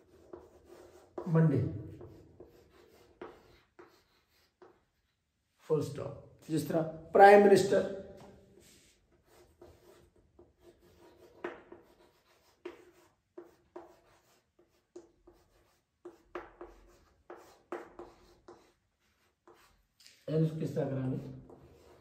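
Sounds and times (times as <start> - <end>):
chalk scraping on chalkboard: 0.0 - 5.6, 8.5 - 22.0.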